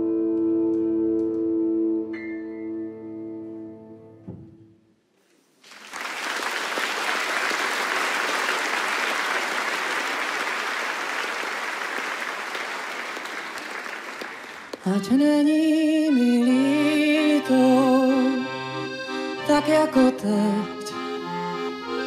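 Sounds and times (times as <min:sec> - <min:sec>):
audience applause: 0:05.6 - 0:14.8.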